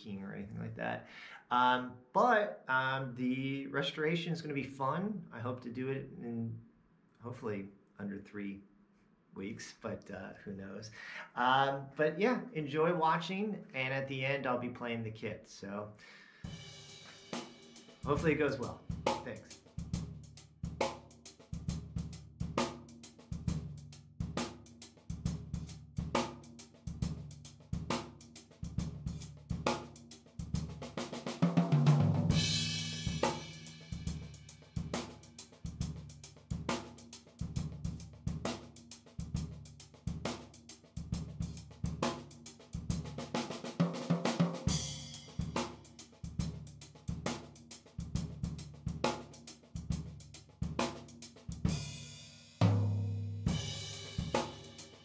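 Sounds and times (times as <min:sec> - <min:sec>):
drum kit playing a beat: 0:16.4 - 0:55.0.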